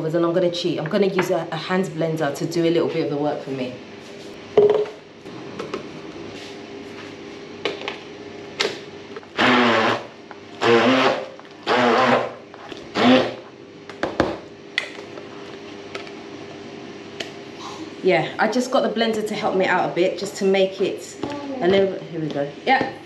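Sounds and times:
immersion blender whirring: 0:09.2 - 0:13.5.

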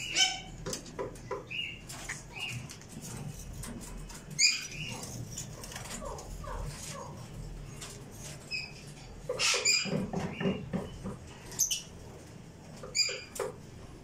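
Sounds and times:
parrots chirping and squeaking: 0:00.0 - 0:00.7, 0:01.4 - 0:11.9, 0:12.8 - 0:13.5
rustling in cages: 0:00.0 - 0:14.0.

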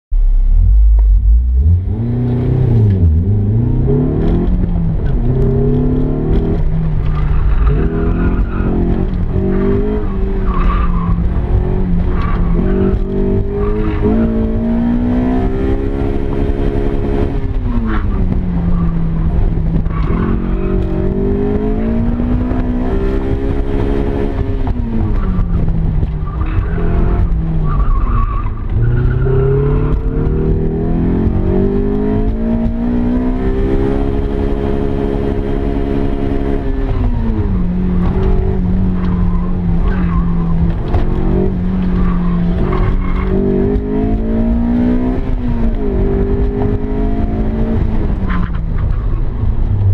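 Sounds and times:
car engine revving: 0:00.2 - 0:49.9
tire squeal: 0:07.0 - 0:15.1, 0:19.8 - 0:22.8, 0:24.8 - 0:30.5, 0:37.0 - 0:44.7.

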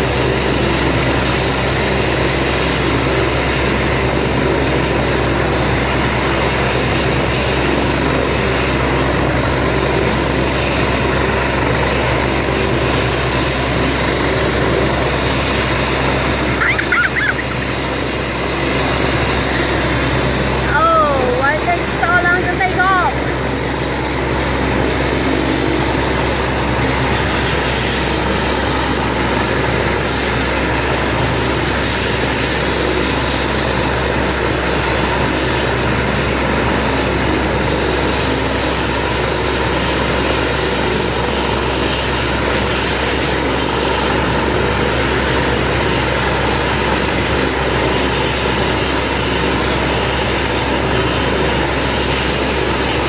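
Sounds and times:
helicopter rotor and turbine: 0:00.0 - 0:53.0.

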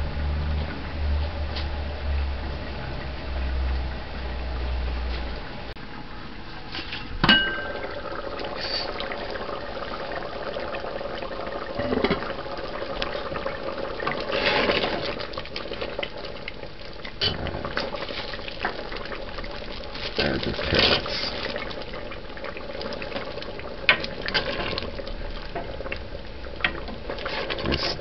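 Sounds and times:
gravy bubbling in a pot: 0:00.0 - 0:28.0
metal lid clank: 0:06.9 - 0:07.8
metal ladle clinking: 0:07.2 - 0:07.9.

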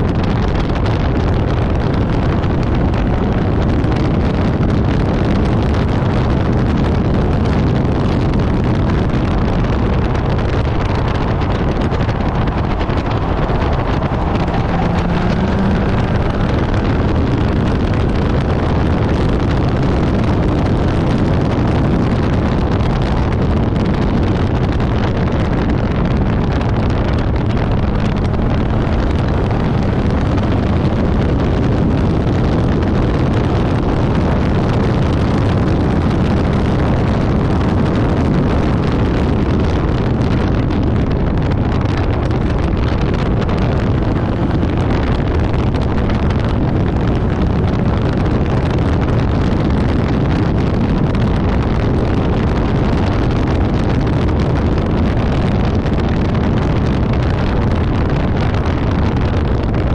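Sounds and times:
car engine driven hard: 0:00.0 - 0:59.9
wind noise on microphone: 0:00.0 - 0:59.9.

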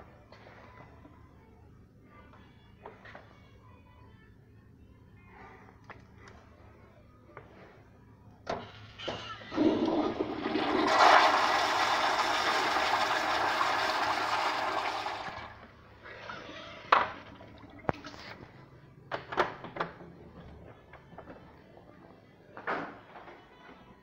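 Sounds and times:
toilet flushing: 0:09.5 - 0:18.3.

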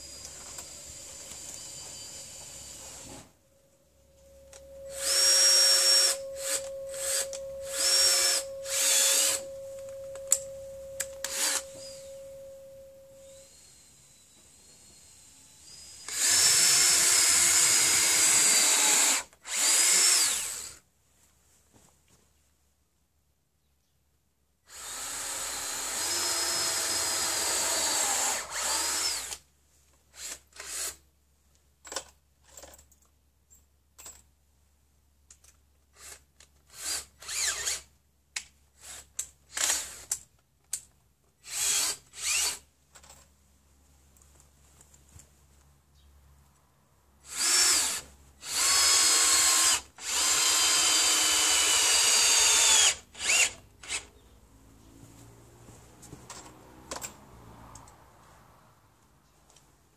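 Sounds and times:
cordless drill drilling wood: 0:00.0 - 0:03.3, 0:04.6 - 0:09.6, 0:11.0 - 0:12.1, 0:13.4 - 0:20.8, 0:24.7 - 0:29.4, 0:30.2 - 0:31.0, 0:36.0 - 0:37.9, 0:38.8 - 0:40.1, 0:41.4 - 0:42.6, 0:47.2 - 0:54.1.

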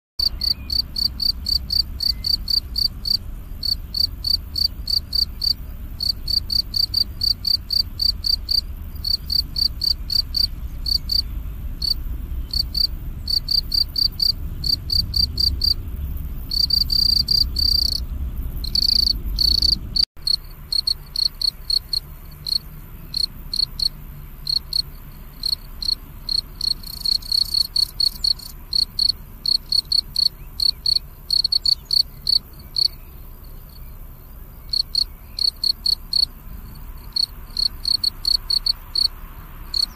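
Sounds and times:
low rumble: 0:00.2 - 0:29.7
cricket chirping: 0:00.2 - 0:39.9.

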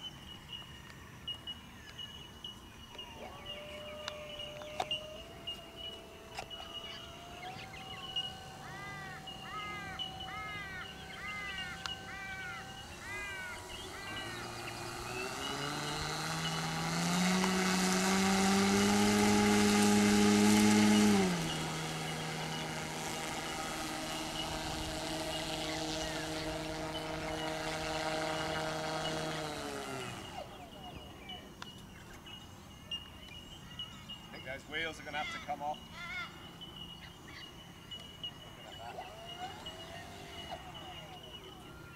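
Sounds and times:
bird calling: 0:00.0 - 0:41.9
model plane motor: 0:02.9 - 0:32.2, 0:38.0 - 0:41.9.

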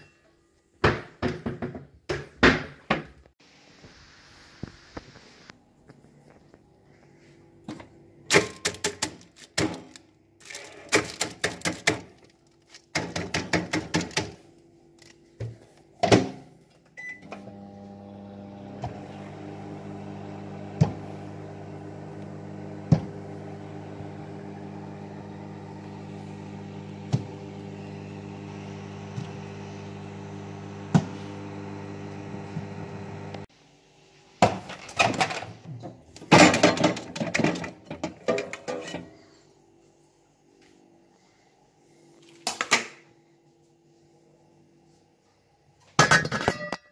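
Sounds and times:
microwave oven humming: 0:17.0 - 0:33.5.

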